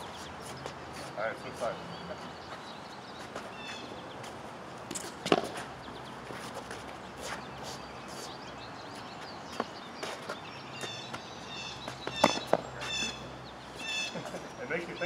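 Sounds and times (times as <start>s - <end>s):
birds chirping: 0.0s - 15.0s
footsteps on court: 0.2s - 8.3s, 8.9s - 13.0s.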